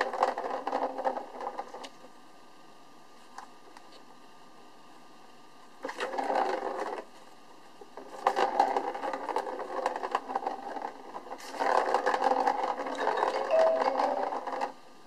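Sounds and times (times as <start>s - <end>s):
plastic ball rattling around track: 0.0s - 2.0s, 5.8s - 7.1s, 7.9s - 14.8s.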